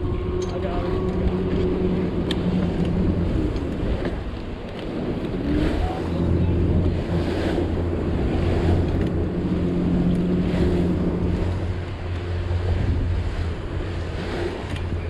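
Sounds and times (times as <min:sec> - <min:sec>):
boat engine running: 0:00.0 - 0:15.0
water washing around boat: 0:00.0 - 0:15.0
wind buffeting microphone: 0:00.0 - 0:15.0.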